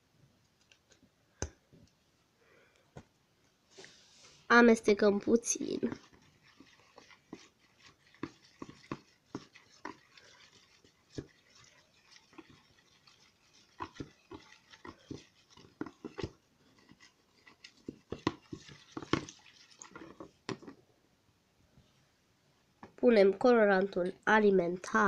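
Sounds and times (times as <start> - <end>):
spoon scraping plastic bowl: 5.0 - 20.8.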